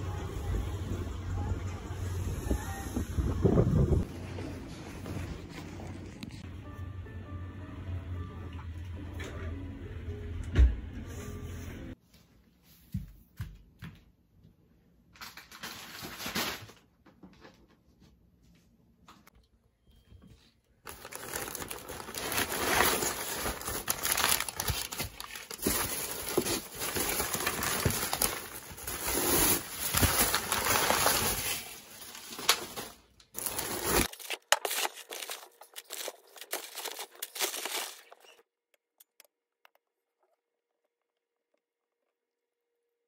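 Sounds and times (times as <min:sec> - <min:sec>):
paper and plastic rustling: 0:15.2 - 0:17.7, 0:20.8 - 0:38.4.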